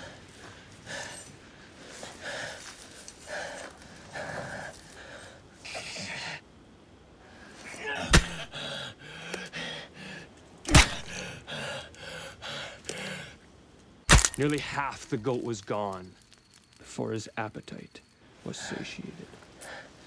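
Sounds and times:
man gasping and breathing hard: 8.2s - 13.4s.

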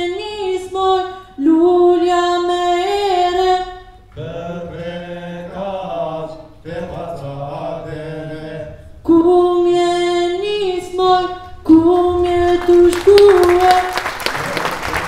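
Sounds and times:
men's voices singing together: 4.1s - 8.9s.

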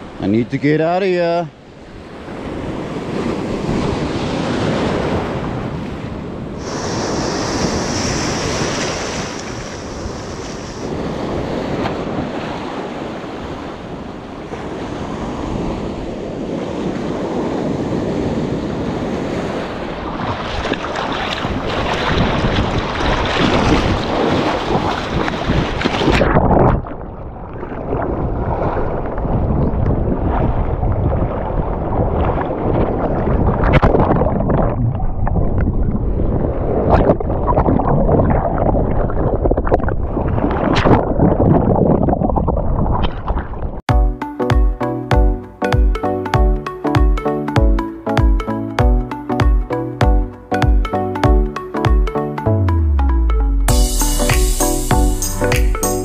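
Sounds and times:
waves breaking in surf: 0.0s - 34.5s
wind buffeting microphone: 1.7s - 43.8s.

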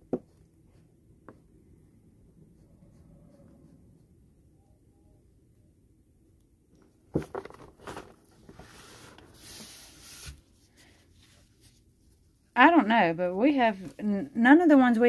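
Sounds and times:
gloved hands rustling and sliding: 7.8s - 12.5s.

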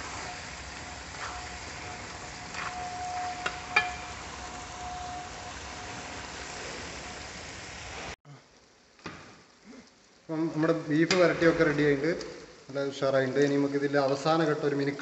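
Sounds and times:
wooden spatula stirring: 0.0s - 7.0s
meat sizzling in metal pot: 0.0s - 8.2s.

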